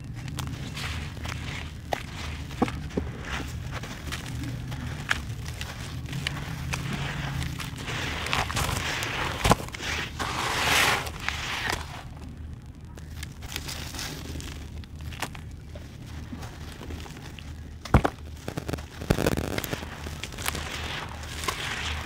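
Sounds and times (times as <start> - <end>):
dry cement chunks crunching by hand: 0.0 - 22.0
grit falling into wet paste: 0.0 - 22.0
sharp crack: 17.8 - 22.0.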